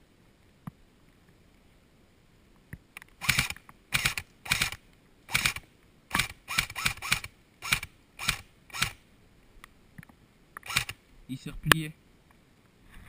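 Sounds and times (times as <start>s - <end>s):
airsoft rifle shots: 3.2s - 9.0s, 10.6s - 11.0s.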